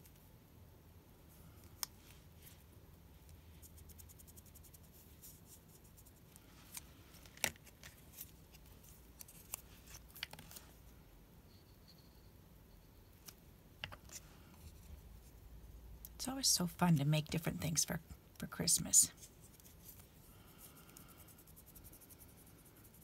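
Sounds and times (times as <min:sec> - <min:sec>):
paper rustling: 0:06.4 - 0:10.8.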